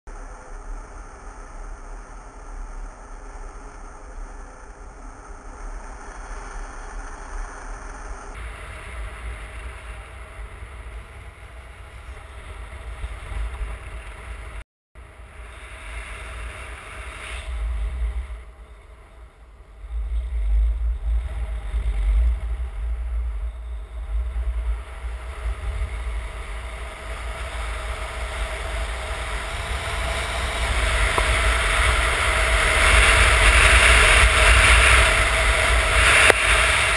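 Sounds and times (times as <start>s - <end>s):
wind buffeting microphone: 19.7s - 36.9s.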